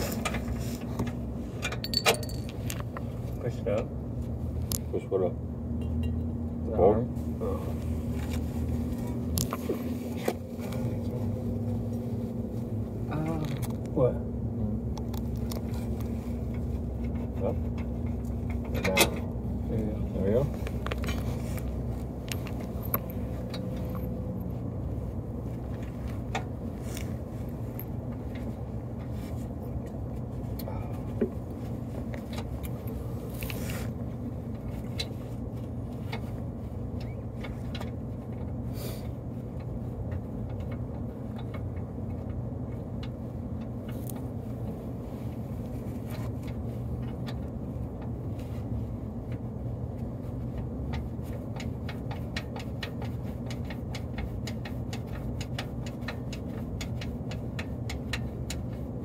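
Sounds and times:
steady low hum: 0.0s - 59.0s
metallic clinks of tools: 1.7s - 2.6s.

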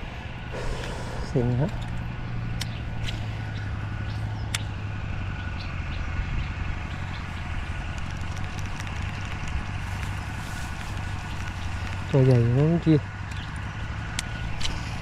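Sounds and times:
low mechanical hum: 0.0s - 15.0s
sharp clicks: 0.6s - 3.2s, 4.4s - 4.8s.

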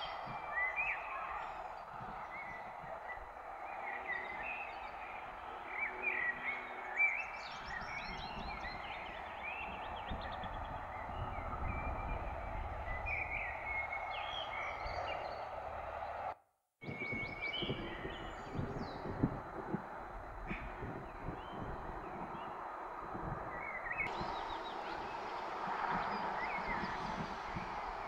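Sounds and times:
songbirds singing and chirping: 0.0s - 28.0s
low rumble: 7.8s - 16.3s
outdoor hiss: 18.2s - 28.0s.

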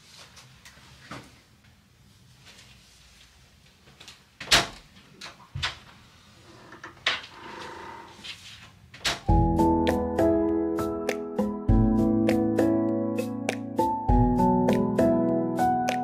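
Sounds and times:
music: 9.3s - 16.0s.

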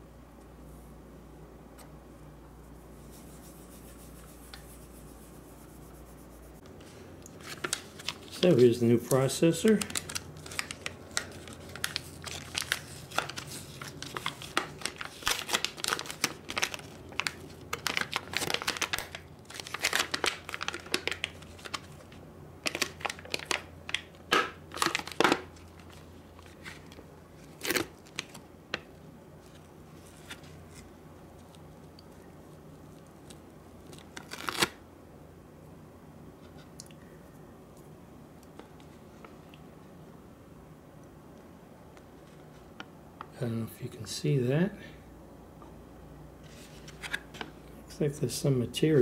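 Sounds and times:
plastic packaging crinkling: 7.3s - 30.8s, 32.9s - 34.8s.

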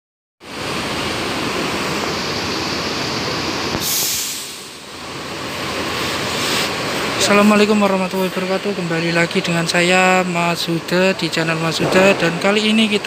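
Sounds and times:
air brake hiss: 3.7s - 4.8s, 6.3s - 6.8s.

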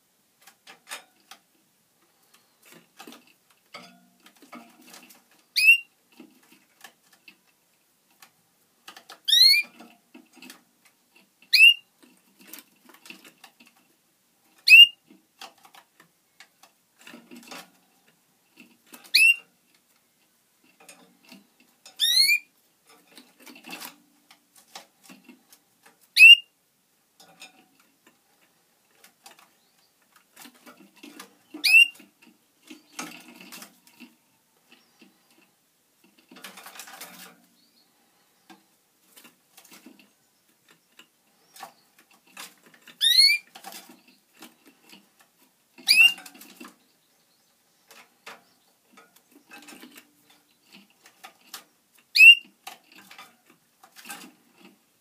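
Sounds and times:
faint ticking and scratching: 27.2s - 55.0s.

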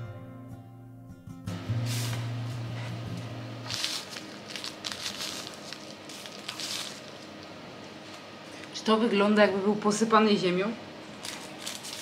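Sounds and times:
crumbs rustling onto cake: 3.6s - 8.2s, 11.2s - 12.0s.

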